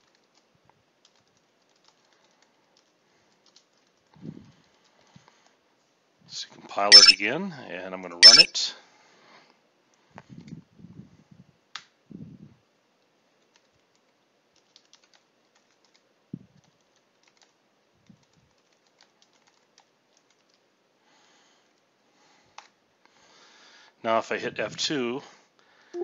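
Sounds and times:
keyboard typing: 6.9s - 7.2s, 8.2s - 8.5s, 14.6s - 16.0s, 16.7s - 17.5s.

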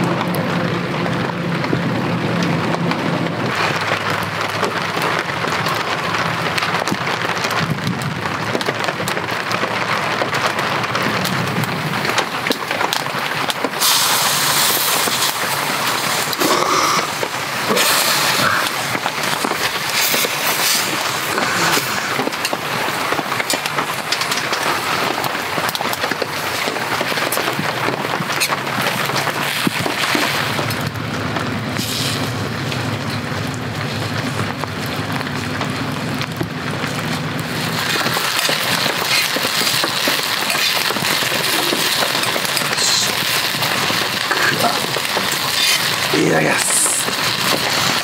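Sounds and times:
heavy rain: 0.0s - 48.0s
meat sizzling in a frying pan: 13.7s - 18.6s, 37.4s - 46.2s, 46.8s - 48.0s.

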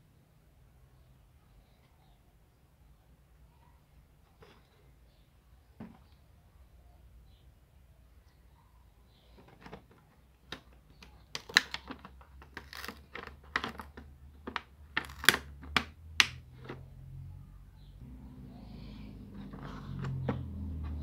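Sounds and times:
plastic packaging clicking: 10.5s - 16.4s.

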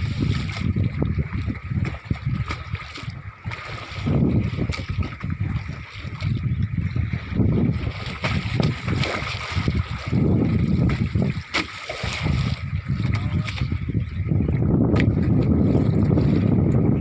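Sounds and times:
water sloshing against boat: 0.0s - 17.0s
wind buffeting microphone: 0.0s - 17.0s.

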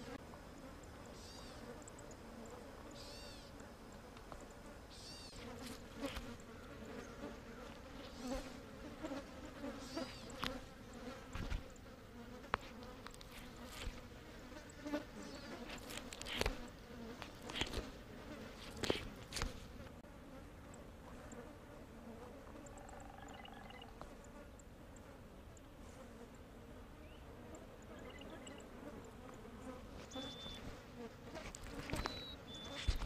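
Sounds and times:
flies buzzing: 0.0s - 33.0s
vulture pecking and tearing: 5.4s - 6.4s, 12.4s - 14.1s, 15.5s - 19.9s, 30.0s - 33.0s.

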